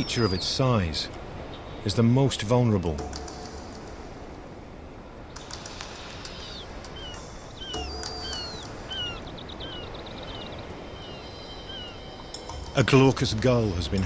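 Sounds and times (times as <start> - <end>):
high downward-sliding bird chirps: 0.0 - 0.8, 5.3 - 13.2
steady background noise: 0.0 - 14.0.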